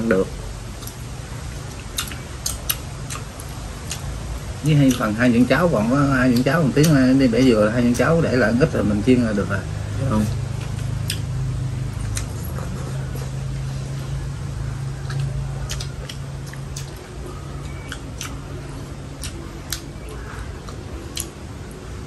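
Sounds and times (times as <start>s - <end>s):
low steady hum: 0.0s - 22.0s
chewing: 0.7s - 1.0s, 1.6s - 4.1s, 4.8s - 5.2s, 10.2s - 21.8s.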